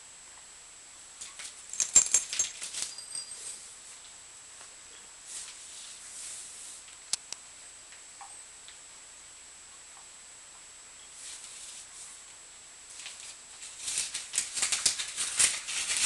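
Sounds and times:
animals scuffling on carpet: 0:05.2 - 0:06.9, 0:11.1 - 0:12.3.

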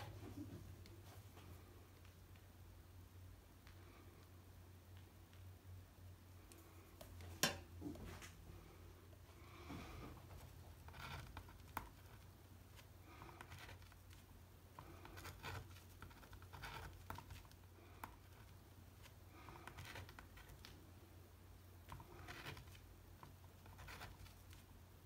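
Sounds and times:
faint low hum: 0:00.0 - 0:25.0
pastel scratching on paper: 0:10.4 - 0:20.7, 0:21.9 - 0:24.6.

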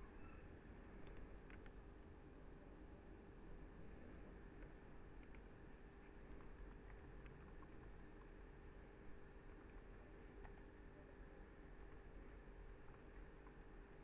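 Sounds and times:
steady low hum: 0:00.0 - 0:14.0
computer keyboard typing: 0:00.9 - 0:01.7, 0:06.0 - 0:08.4, 0:09.4 - 0:10.8, 0:12.6 - 0:13.6.

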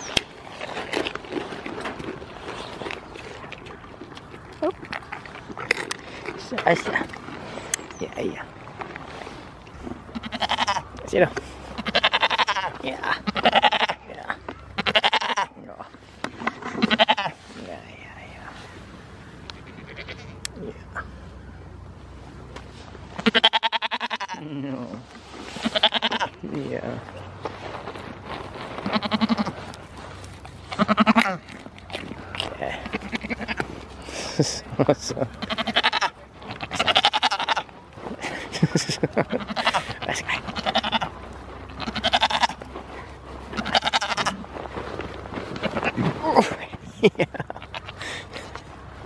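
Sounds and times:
goat bleating: 0:10.0 - 0:11.0, 0:11.7 - 0:14.2, 0:14.8 - 0:15.7, 0:16.6 - 0:17.4, 0:19.5 - 0:20.8, 0:23.2 - 0:24.6, 0:25.5 - 0:26.4, 0:28.8 - 0:29.8, 0:30.7 - 0:31.6, 0:32.3 - 0:34.4, 0:35.3 - 0:37.7, 0:39.2 - 0:42.7, 0:43.4 - 0:44.4, 0:45.6 - 0:46.6, 0:47.5 - 0:48.6.

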